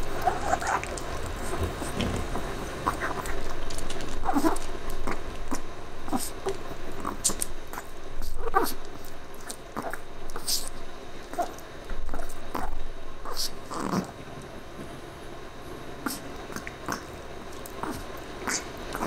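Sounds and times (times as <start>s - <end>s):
dog gnawing on bone: 0.0s - 6.3s.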